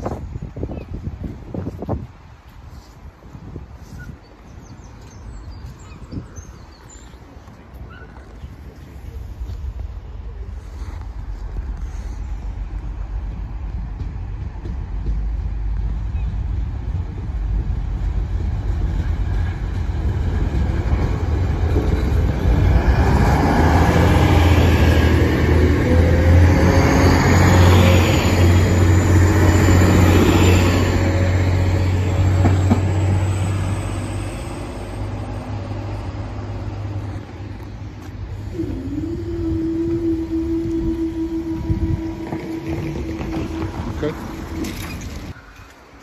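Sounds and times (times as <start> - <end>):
diesel train engines droning: 2.1 - 46.0
high whine rising in pitch: 21.4 - 45.4.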